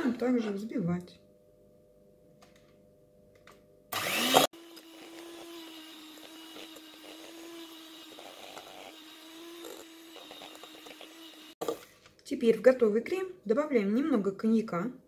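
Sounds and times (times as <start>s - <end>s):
electric hand mixer running: 4.0s - 11.6s.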